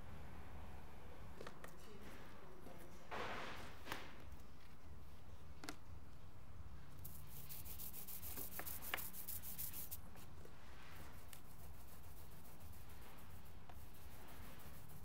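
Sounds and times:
scratchy rubbing on printing press: 7.0s - 10.0s, 11.4s - 15.0s.

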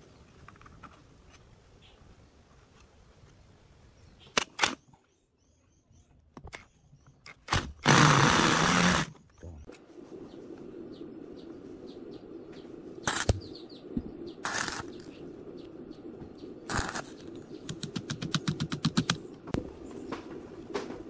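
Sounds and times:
birds chirping faintly: 0.0s - 21.0s
loud hiss: 7.8s - 9.1s, 13.0s - 13.4s, 14.4s - 15.0s, 16.7s - 17.2s
low hum: 7.8s - 21.0s.

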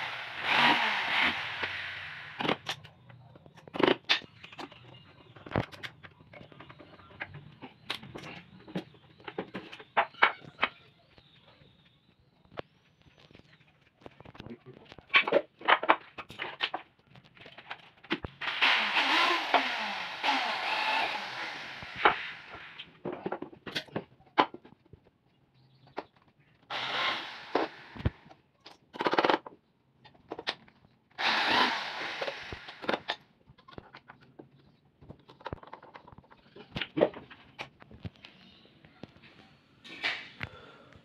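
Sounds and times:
electric drill driving screws: 0.0s - 2.6s, 18.4s - 22.8s, 26.7s - 28.3s, 31.2s - 33.2s.

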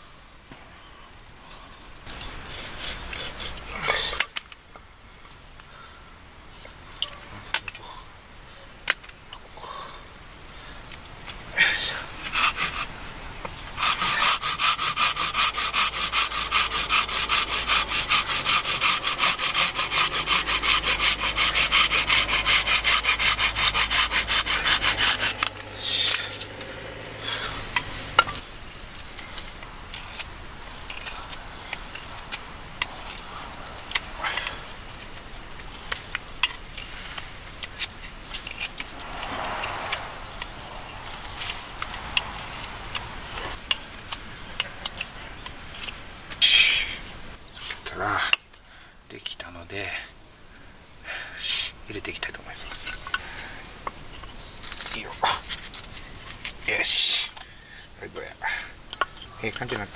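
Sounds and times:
saw cutting branch: 2.0s - 4.4s, 11.6s - 48.3s.

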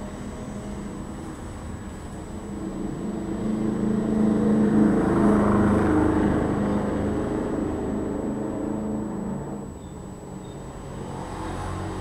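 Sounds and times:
vehicle engine passing by: 0.0s - 12.0s.

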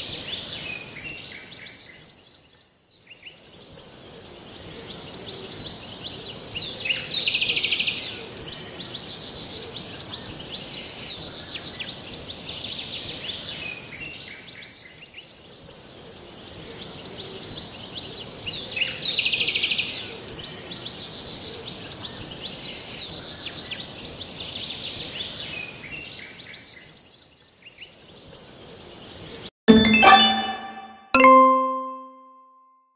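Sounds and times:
bright chime-like ding: 29.7s - 32.6s.

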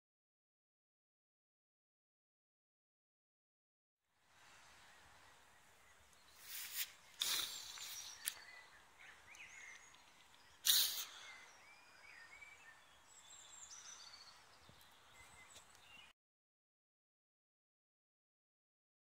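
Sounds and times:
low outdoor hiss: 4.1s - 16.1s
small birds chirping: 4.2s - 16.2s
loud rustle: 6.4s - 8.2s.

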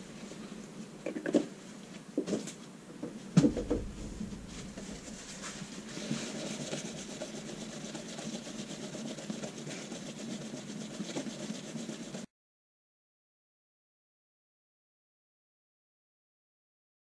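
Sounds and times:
sandpaper rasping on metal blade: 5.0s - 12.3s.

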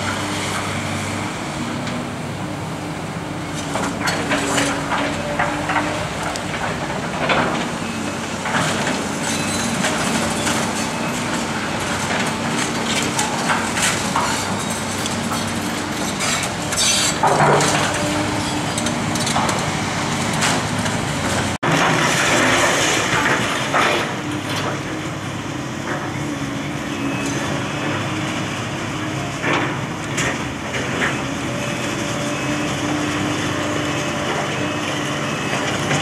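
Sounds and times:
excavator engine humming: 0.0s - 36.0s
building debris cracking and crashing: 3.8s - 24.8s.

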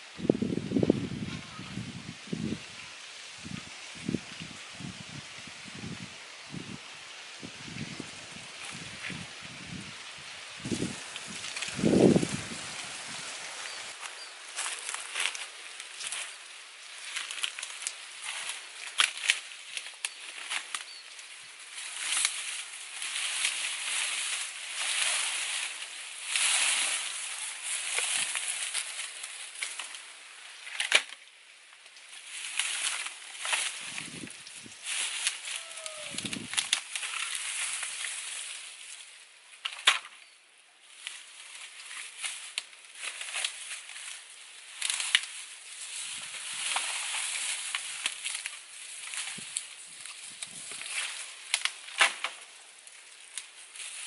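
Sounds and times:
dry leaves rustling and crackling: 0.0s - 54.0s
twigs snapping: 10.6s - 38.8s, 39.6s - 40.2s, 40.9s - 54.0s.

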